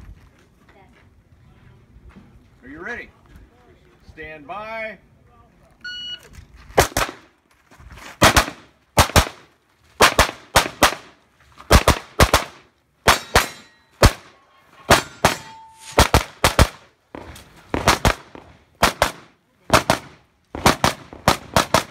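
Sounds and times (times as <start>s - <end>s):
shot timer beep: 5.8s - 6.3s
pistol shots: 6.8s - 7.3s, 8.2s - 9.4s, 10.0s - 21.9s.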